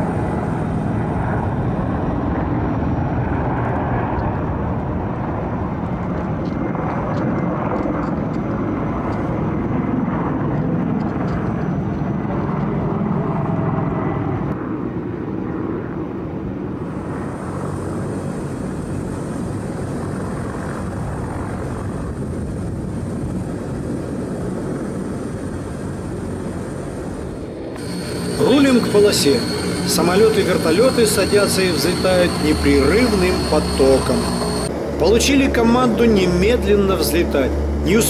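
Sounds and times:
helicopter flying past: 0:00.0 - 0:38.0
thin high whine: 0:27.8 - 0:38.0.

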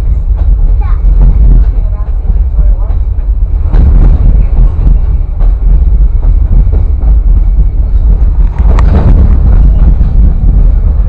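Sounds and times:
train car rumbling on rails: 0:00.0 - 0:11.0
wind buffeting microphone: 0:00.0 - 0:11.0.

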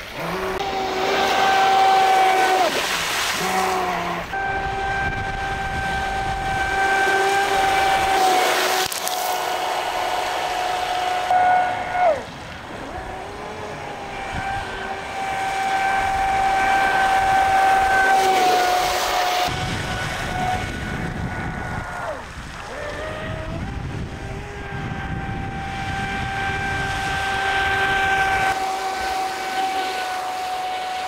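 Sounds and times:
electric motor high whine: 0:00.0 - 0:22.1, 0:22.7 - 0:31.0.

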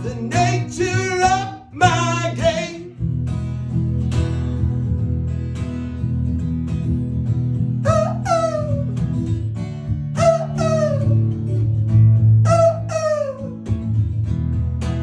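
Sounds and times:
acoustic guitar strummed: 0:00.0 - 0:15.0
short falling wails: 0:07.8 - 0:09.0, 0:10.2 - 0:11.2, 0:12.5 - 0:13.6.

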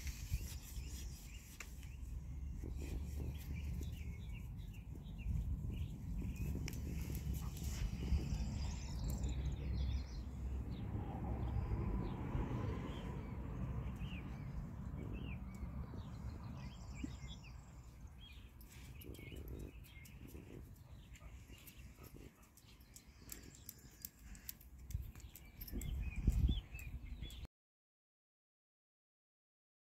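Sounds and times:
small birds chirping: 0:00.0 - 0:27.5
low rumble: 0:02.2 - 0:17.0.

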